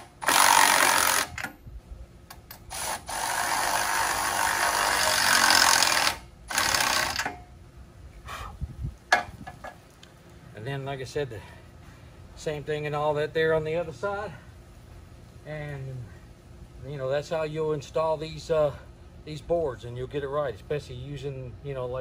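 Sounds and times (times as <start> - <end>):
power ratchet running: 0.0 - 1.6, 2.6 - 7.4.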